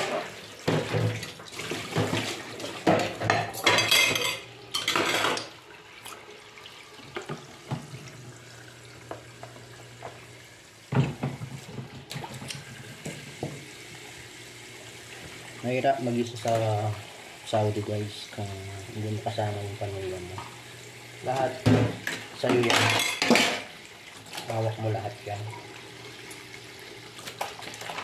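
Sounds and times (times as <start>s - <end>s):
dishes clattering: 0.0s - 5.5s, 10.9s - 11.9s, 21.6s - 23.7s
tap running into sink: 7.0s - 8.2s, 9.0s - 10.3s, 10.9s - 14.0s.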